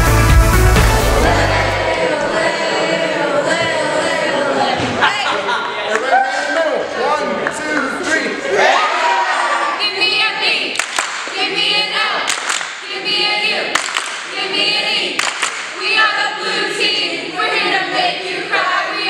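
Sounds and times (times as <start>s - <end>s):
teenagers singing together: 0.7s - 6.0s, 8.1s - 19.0s
hand claps: 10.7s - 11.4s, 12.3s - 12.8s, 13.7s - 14.4s, 15.2s - 15.8s.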